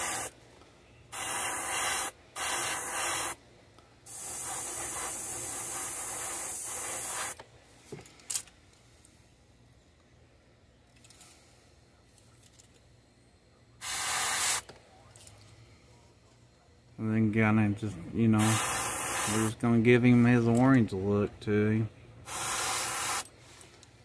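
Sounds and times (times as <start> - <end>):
airbrush spraying hiss: 0.0 - 0.4, 1.1 - 3.4, 4.0 - 7.4, 13.8 - 14.7, 18.4 - 19.6, 22.2 - 23.8.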